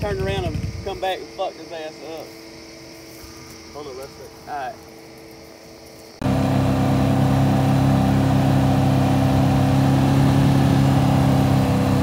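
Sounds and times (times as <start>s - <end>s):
road noise: 0.0s - 12.0s
vehicle engine humming: 0.0s - 12.0s.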